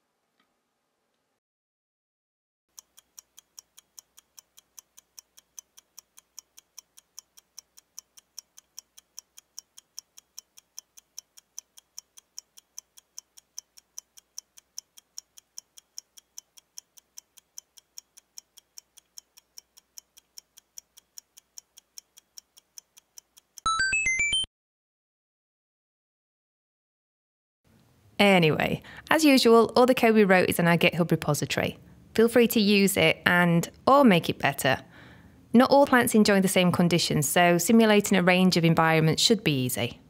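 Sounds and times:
clock ticking: 2.7s - 23.7s.

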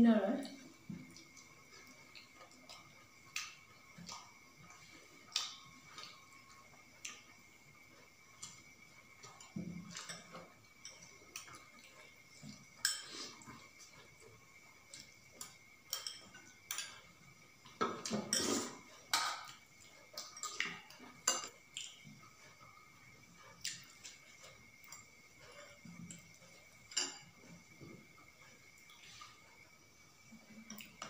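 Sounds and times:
metal spoons clinking on bowls: 15.4s - 17.0s, 21.2s - 21.5s, 26.9s - 27.4s.

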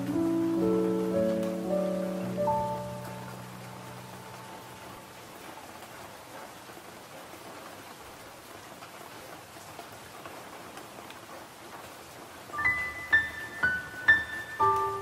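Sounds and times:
steady rain: 0.0s - 15.0s.

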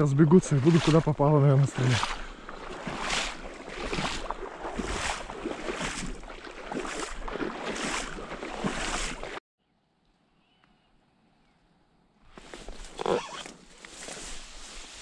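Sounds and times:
swishing and splashing water: 0.0s - 9.4s, 13.6s - 15.0s.

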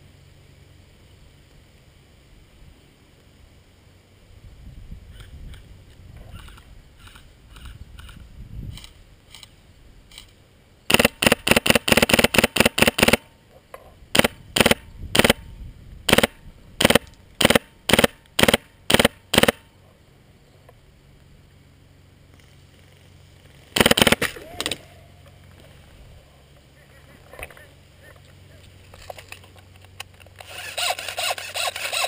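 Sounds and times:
airsoft gun firing: 10.9s - 13.3s, 14.1s - 15.5s, 16.1s - 19.6s, 23.8s - 24.8s.

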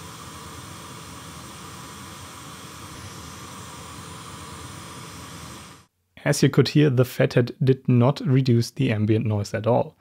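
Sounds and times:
steady hissing noise: 0.0s - 7.0s.

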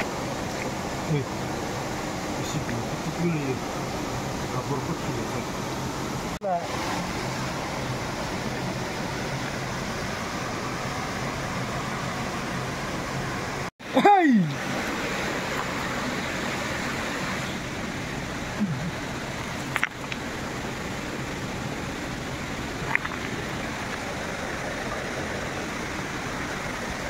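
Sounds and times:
stream water rushing: 0.0s - 27.0s
person crying out: 18.6s - 19.0s.

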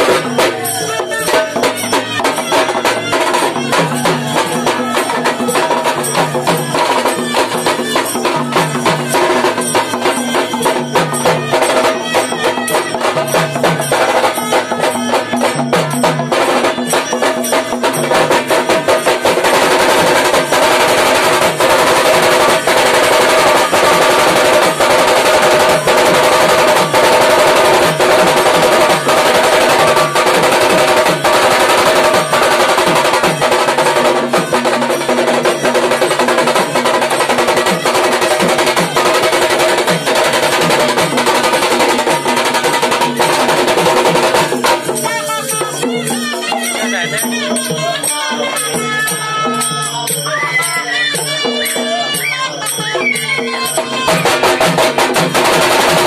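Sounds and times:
drums playing fast rhythm: 0.0s - 56.0s.

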